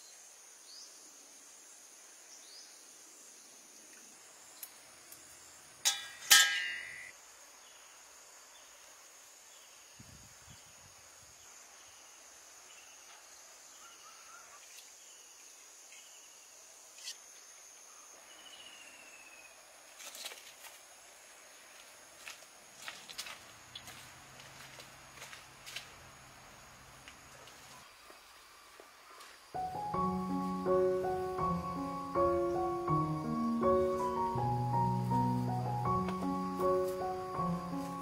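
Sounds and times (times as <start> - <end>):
insects droning: 0.0 - 38.0
ringing clink: 5.9 - 7.1.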